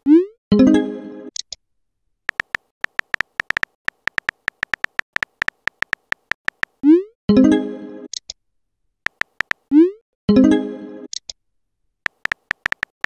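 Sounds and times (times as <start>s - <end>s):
keyboard tap ticks: 2.3s - 6.8s, 9.1s - 9.6s, 12.1s - 13.0s.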